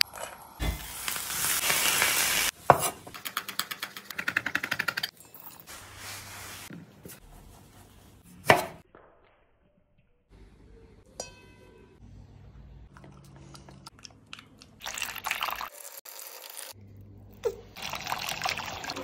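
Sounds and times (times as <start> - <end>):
knife chopping on wooden board: 8.3 - 8.8.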